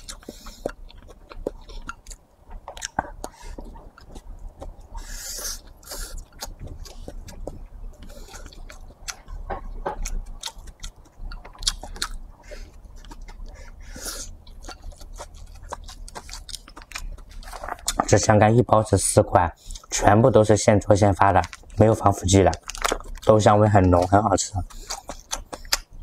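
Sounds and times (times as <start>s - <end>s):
close-up chewing: 0.0s - 18.4s, 21.0s - 26.0s
breathy hiss: 5.0s - 6.2s.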